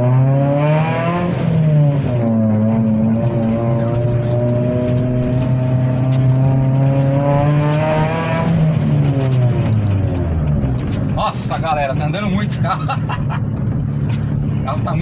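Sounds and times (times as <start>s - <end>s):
car engine revving under load: 0.0s - 15.0s.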